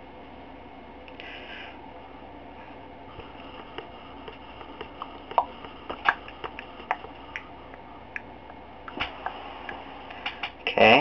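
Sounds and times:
room noise hum and hiss: 0.0s - 11.0s
faint irregular clicks: 3.2s - 10.6s.

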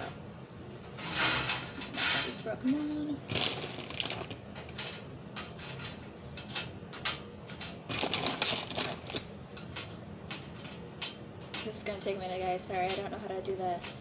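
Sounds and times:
pretzels tapping on metal sheet: 7.9s - 9.2s.

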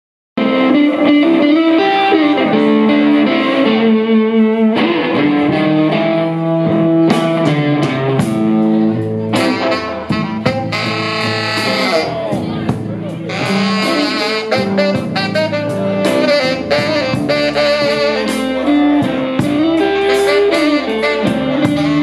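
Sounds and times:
bass guitar: 0.4s - 22.0s
electric guitar melody: 0.4s - 22.0s
drum and cymbal strikes: 7.1s - 22.0s.

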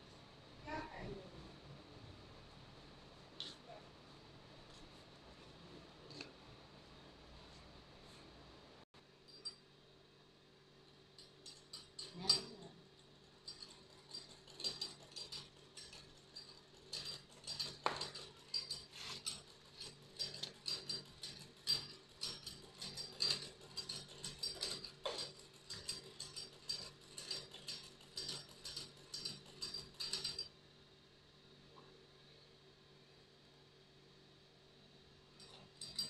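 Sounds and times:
sewing machine clattering: 11.2s - 30.5s.

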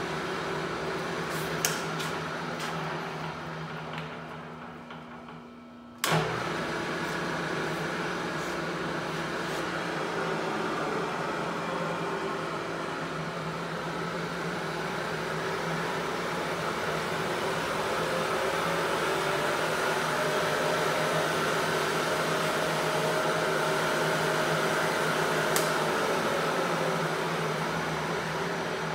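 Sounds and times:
milling machine motor humming: 0.0s - 28.9s
click: 6.0s - 6.2s, 25.5s - 25.8s.

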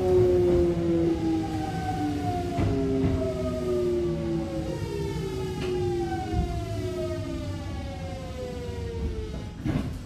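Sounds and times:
train wheels rumbling: 0.0s - 10.0s.

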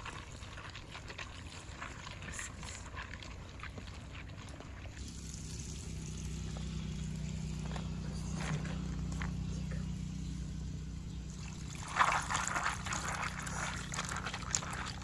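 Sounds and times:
water splashing in a bowl: 0.0s - 6.1s, 11.3s - 15.0s
steady low hum: 1.3s - 15.0s.

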